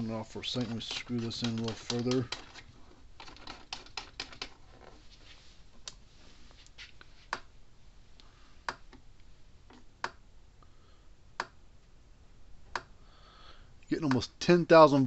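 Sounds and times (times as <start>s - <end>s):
electric fence charger ticking: 0.6s - 2.5s.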